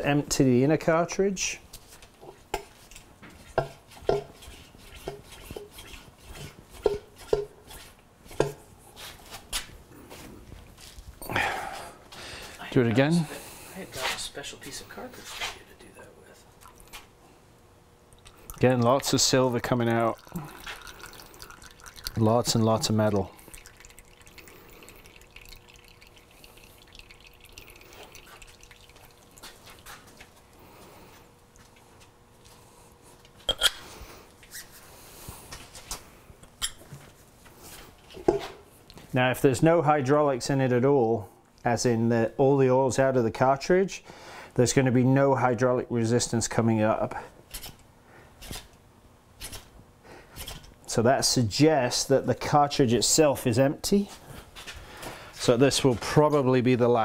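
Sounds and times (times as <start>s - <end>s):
oil dripping into plastic jug: 18.1s - 30.6s.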